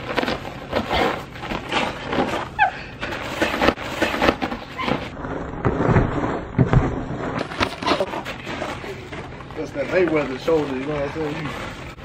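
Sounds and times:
scuffing and shuffling: 7.2 - 12.0.

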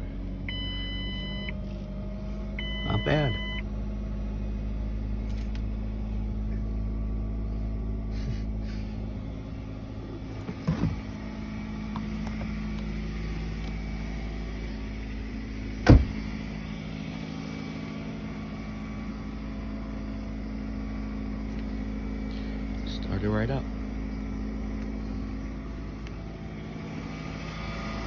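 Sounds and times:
car engine idling: 0.0 - 28.0
car door slamming: 10.2 - 11.3, 15.8 - 16.4.

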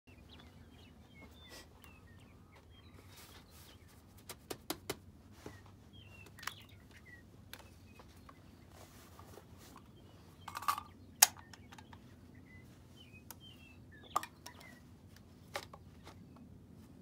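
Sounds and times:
small birds chirping: 0.1 - 17.0
rifle handling clicks and knocks: 9.7 - 12.1, 14.1 - 16.2.

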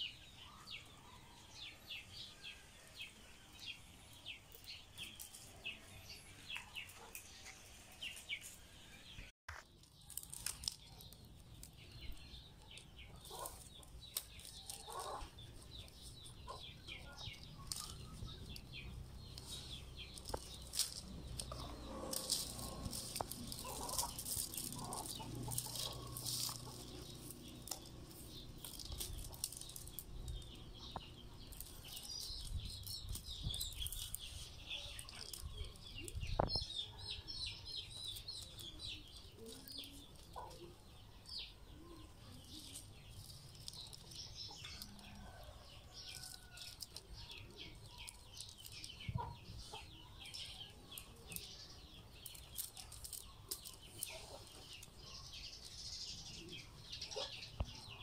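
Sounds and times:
rattan strips rustling and clicking: 9.8 - 36.2, 37.9 - 40.6, 42.3 - 49.3, 52.2 - 56.2
chickens clucking: 12.1 - 32.0, 43.6 - 51.4.

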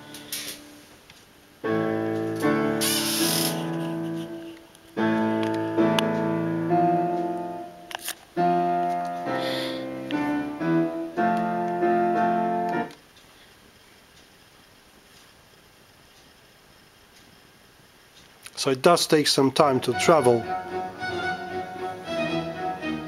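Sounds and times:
classical piano music: 1.6 - 12.9, 19.8 - 23.0.

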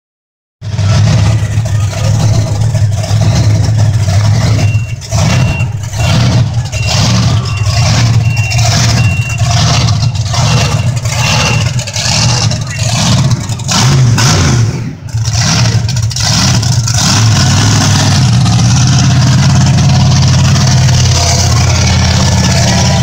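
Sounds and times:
truck engine revving loudly: 0.6 - 23.0
high steady beeping: 3.6 - 13.6.

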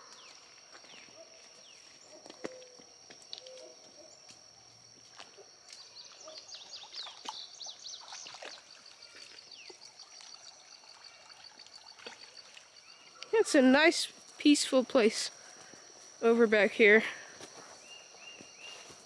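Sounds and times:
birds chirping: 5.7 - 13.4.

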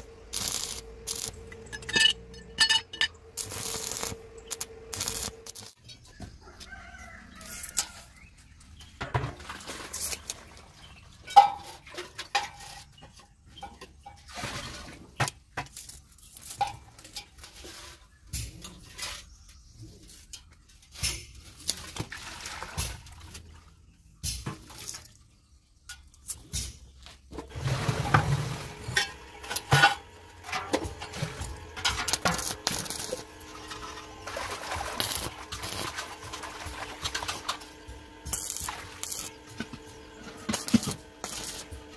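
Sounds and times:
arc weld crackle: 0.0 - 5.8, 9.9 - 10.4, 15.7 - 17.6, 27.5 - 41.9
metal parts clinking: 0.4 - 5.7.

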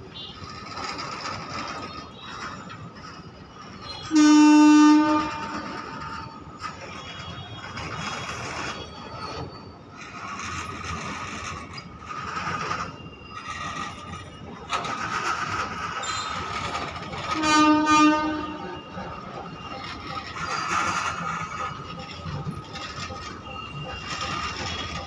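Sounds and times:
steel wheels squealing: 0.0 - 25.0
train rumbling past: 0.0 - 25.0
brief pitched tone: 15.6 - 17.4.

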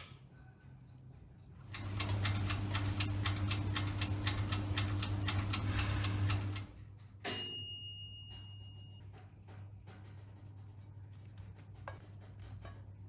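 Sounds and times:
clockwork timer ticking: 1.0 - 7.4
low hum: 1.7 - 6.8
timer bell ding: 7.2 - 9.1.

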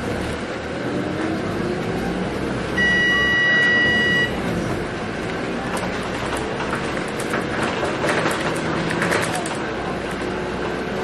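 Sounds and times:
bus engine running: 0.0 - 11.0
road noise inside cabin: 0.0 - 11.0
steady electronic beep: 2.8 - 4.4.

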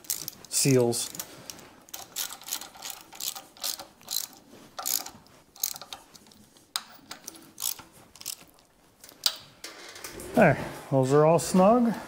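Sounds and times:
ratchet wrench clicking: 1.9 - 6.0, 6.8 - 8.5.

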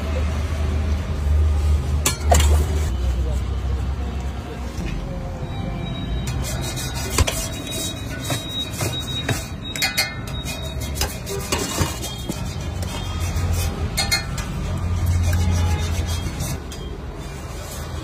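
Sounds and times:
ladle and plates clinking: 8.1 - 12.6, 13.9 - 14.7.

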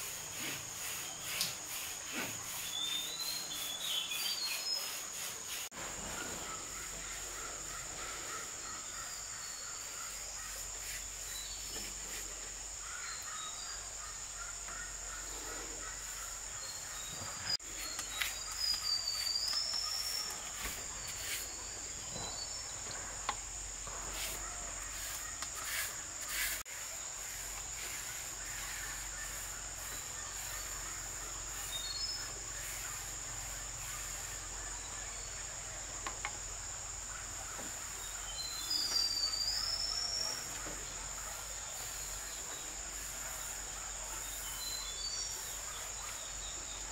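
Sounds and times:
insects droning: 0.0 - 46.9
whistled bird calls: 17.0 - 21.4.

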